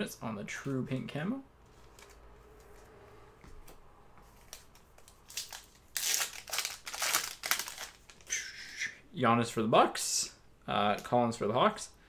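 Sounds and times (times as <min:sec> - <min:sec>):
plastic wrapper crinkling: 0:04.4 - 0:08.3.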